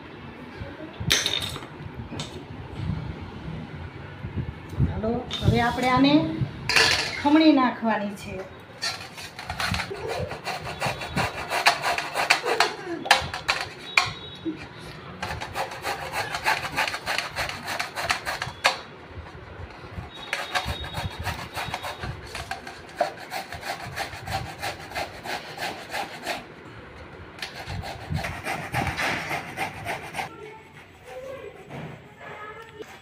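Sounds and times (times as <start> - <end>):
gourd rasping on metal grater: 8.8 - 14.0, 15.2 - 18.9, 19.7 - 26.5, 27.4 - 30.4.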